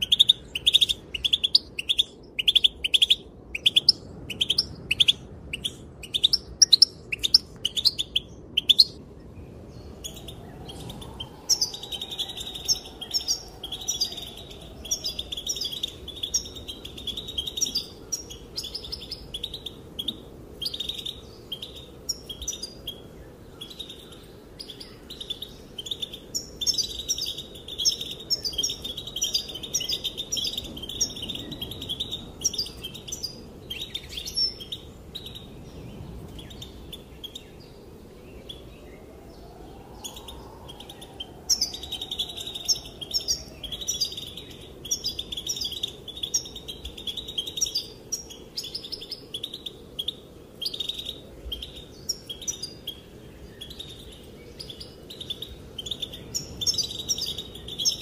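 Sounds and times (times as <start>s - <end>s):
goldfinch chirping and twittering: 9.8s - 35.5s, 41.5s - 58.0s.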